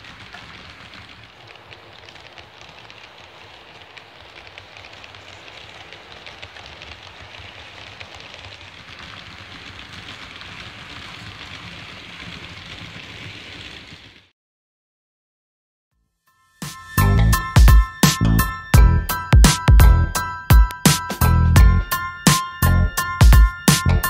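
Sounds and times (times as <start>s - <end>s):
model train wheels rattling: 0.0s - 14.3s.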